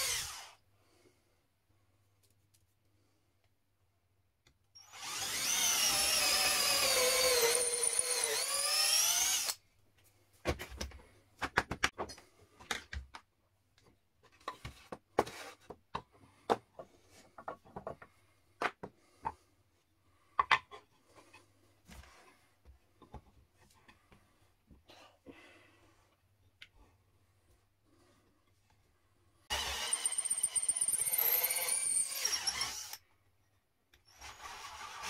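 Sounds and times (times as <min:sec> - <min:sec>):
cordless drill whining: 0:00.0 - 0:00.6, 0:04.8 - 0:09.6, 0:29.5 - 0:33.0, 0:34.0 - 0:35.0.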